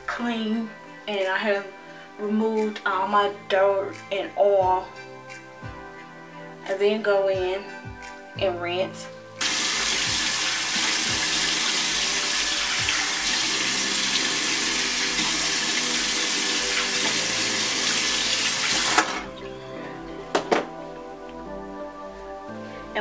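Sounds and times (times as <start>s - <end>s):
faucet running into sink: 9.4s - 19.3s.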